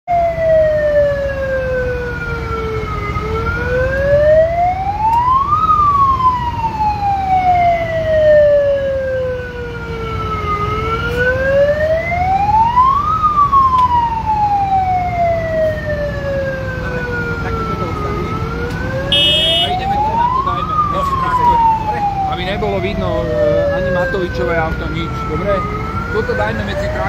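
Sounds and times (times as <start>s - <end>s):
siren wailing: 19.1s - 20.5s.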